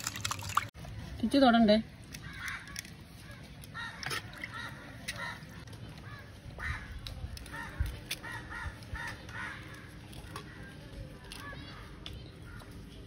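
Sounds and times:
crows cawing: 2.2s - 2.9s, 3.7s - 5.4s, 7.5s - 10.7s.

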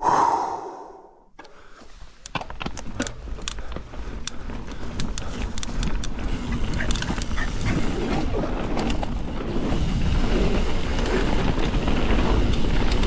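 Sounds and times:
bike clicks and rattles: 1.4s - 13.0s
bike tyre rumble: 2.3s - 13.0s.

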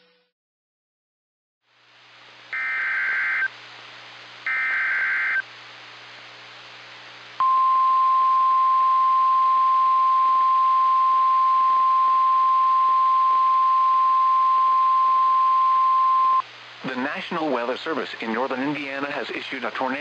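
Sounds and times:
receiver hiss: 1.6s - 20.0s
steady warning alarm tone: 2.6s - 3.5s, 4.5s - 5.4s
short data bursts: 4.5s - 5.4s.

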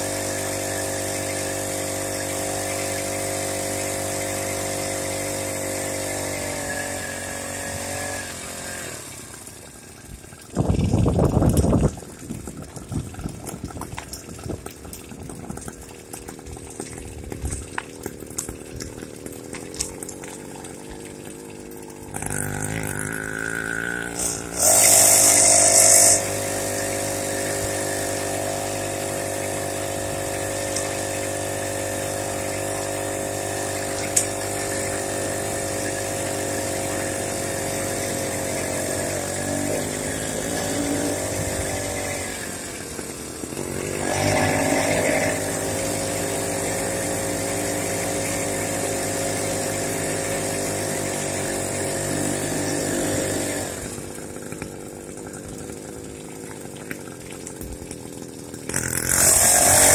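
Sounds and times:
small motorized bicycle engine: 0.0s - 11.8s, 15.4s - 59.9s.

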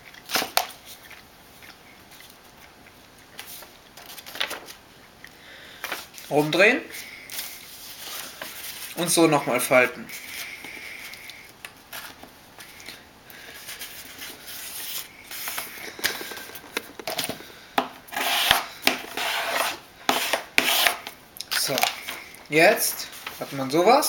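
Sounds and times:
paper rustling: 3.3s - 4.8s, 7.3s - 9.1s, 11.9s - 17.5s, 18.1s - 24.0s.

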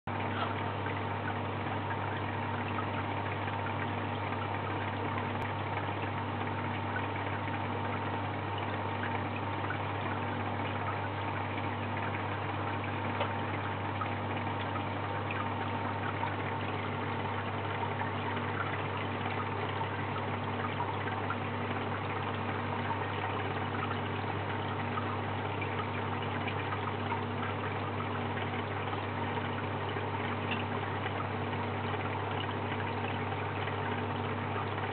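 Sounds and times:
aquarium pumps humming: 0.1s - 34.9s
water circulating and bubbling: 0.1s - 34.9s.

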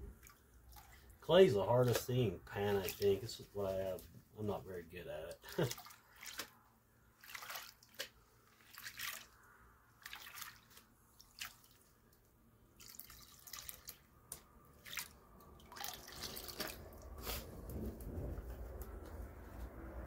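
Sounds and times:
water splashing and dripping: 0.0s - 4.0s, 5.4s - 6.6s, 7.2s - 9.4s, 10.0s - 12.0s, 12.8s - 17.2s.

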